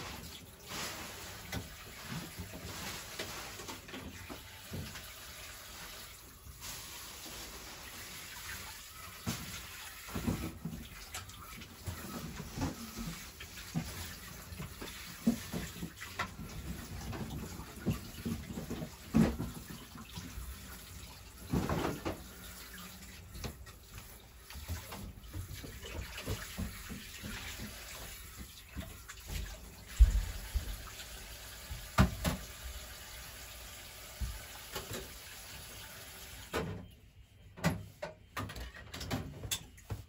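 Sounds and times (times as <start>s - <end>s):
tap running into sink: 24.5s - 31.0s, 31.6s - 32.7s.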